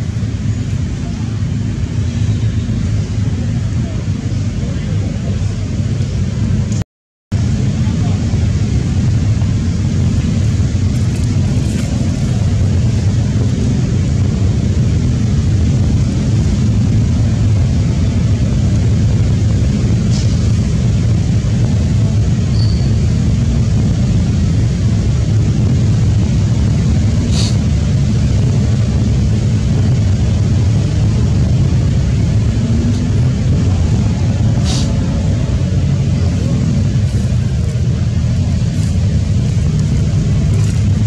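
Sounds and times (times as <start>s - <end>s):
steady low rumbling: 0.0s - 41.0s.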